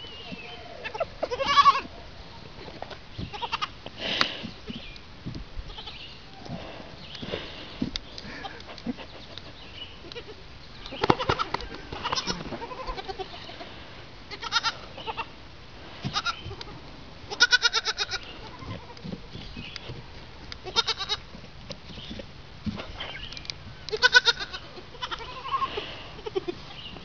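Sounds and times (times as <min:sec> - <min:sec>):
goat kids bleating: 0:00.2 - 0:01.9, 0:03.2 - 0:04.4, 0:05.7 - 0:06.1, 0:10.0 - 0:15.4, 0:16.0 - 0:19.1, 0:20.6 - 0:21.3, 0:23.8 - 0:27.0.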